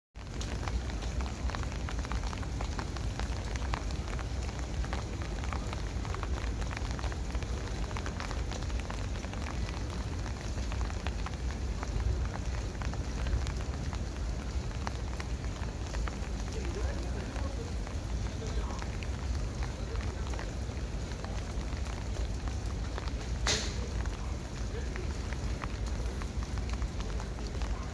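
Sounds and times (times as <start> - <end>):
raindrops pattering: 0.2 - 27.9.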